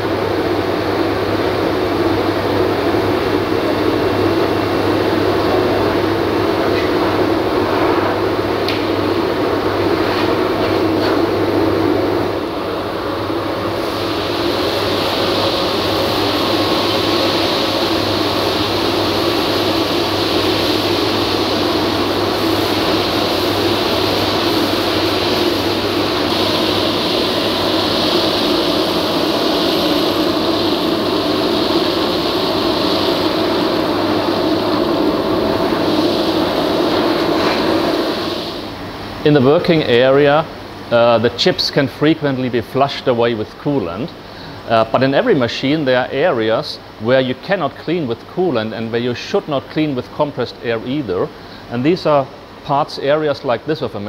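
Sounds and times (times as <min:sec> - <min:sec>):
vacuum sucking up metal swarf: 0:00.0 - 0:38.9
wet and dry vacuum running: 0:00.0 - 0:54.0.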